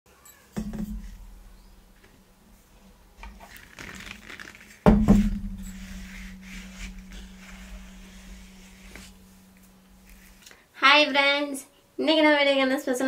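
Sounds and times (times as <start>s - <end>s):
dishes knocking: 0.6s - 1.4s, 4.9s - 7.4s.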